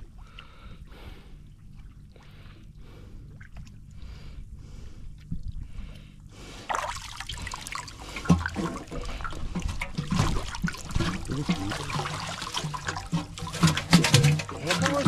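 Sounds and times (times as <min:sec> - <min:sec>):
shallow water sloshing: 0:00.0 - 0:15.0
hands groping through weedy water: 0:06.6 - 0:15.0
wading splashes: 0:06.6 - 0:15.0.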